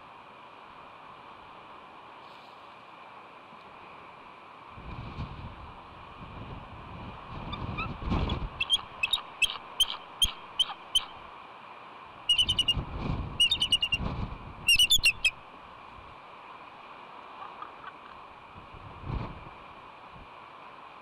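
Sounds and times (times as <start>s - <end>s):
wind rumble on microphone: 4.7s - 9.2s, 12.3s - 16.2s, 18.3s - 20.4s
eagle rapid chattering: 8.6s - 11.1s, 12.3s - 12.8s, 13.4s - 14.0s, 14.7s - 15.3s
eagle piping calls: 8.6s - 11.2s, 12.3s - 12.8s, 13.4s - 14.0s, 14.7s - 15.4s.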